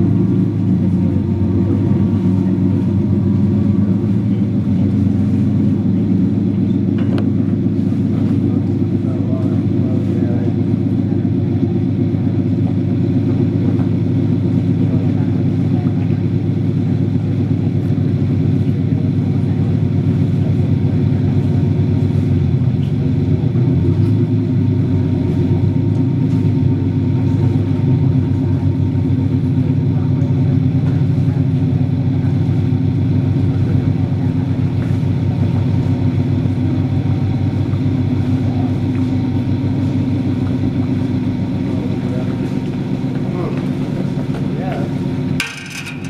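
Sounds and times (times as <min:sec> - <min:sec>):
boat diesel engines rumbling: 0:00.0 - 0:46.0.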